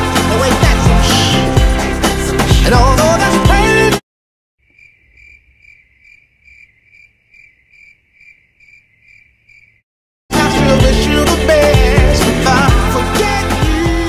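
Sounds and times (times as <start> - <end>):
pop song: 0.0 - 4.0, 10.3 - 14.0
cricket chirping: 4.6 - 9.8.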